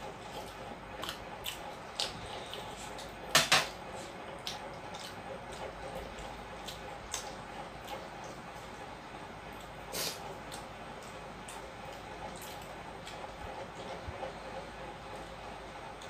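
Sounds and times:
fingers and food on metal plates: 0:00.0 - 0:08.8.

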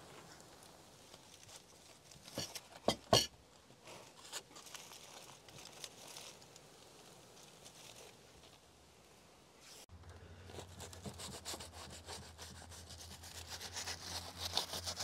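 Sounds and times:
aluminium foil crinkling: 0:00.1 - 0:02.9, 0:03.5 - 0:08.7.

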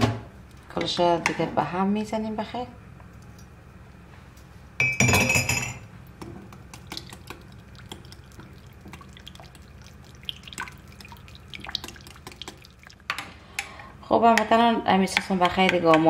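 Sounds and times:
wet liquid sounds: 0:06.6 - 0:13.1.

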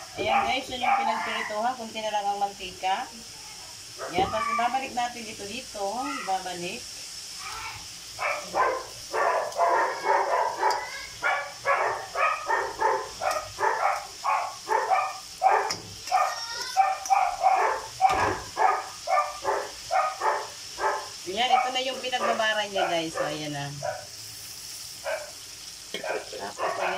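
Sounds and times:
dog barking: 0:00.2 - 0:01.6, 0:08.2 - 0:24.1, 0:25.0 - 0:25.4, 0:26.0 - 0:26.9.

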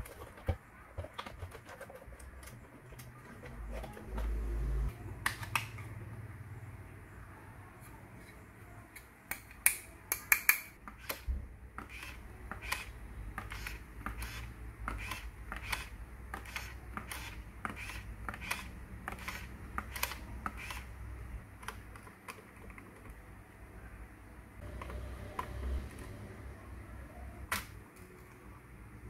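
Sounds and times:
hard plastic toy parts clicking: 0:09.0 - 0:20.9.

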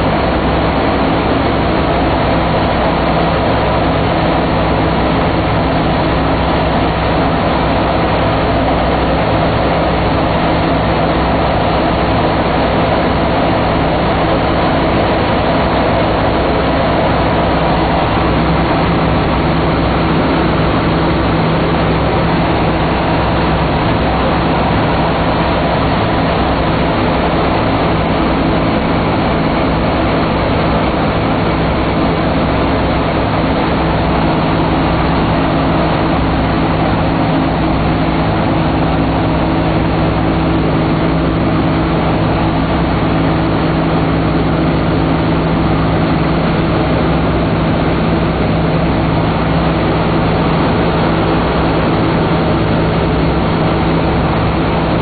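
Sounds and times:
radial aircraft engines droning: 0:00.0 - 0:55.0
rushing air: 0:00.0 - 0:55.0.

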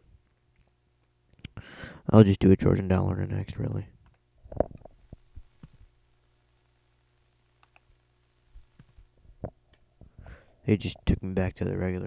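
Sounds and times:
faint steady hum: 0:00.0 - 0:12.0
mouse and keyboard clicks: 0:08.8 - 0:09.0.

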